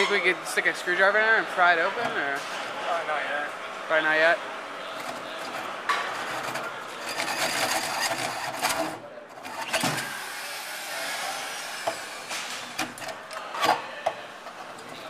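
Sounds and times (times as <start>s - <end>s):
drill cutting through metal: 9.5s - 12.4s.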